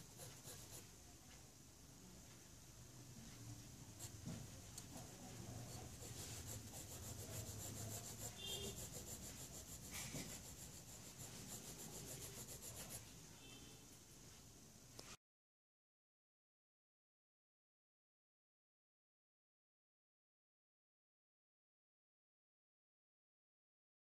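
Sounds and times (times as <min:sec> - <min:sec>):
pencil shading on paper: 0:00.0 - 0:00.9, 0:03.9 - 0:13.1.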